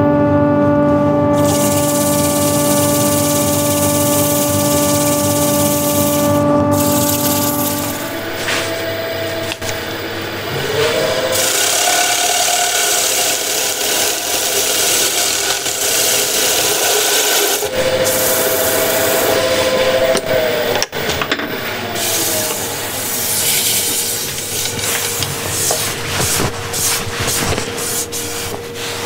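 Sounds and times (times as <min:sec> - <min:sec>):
lathe motor hum: 0:01.3 - 0:20.8
sandpaper rasping on wood: 0:01.4 - 0:08.2, 0:11.4 - 0:18.7, 0:22.0 - 0:29.0.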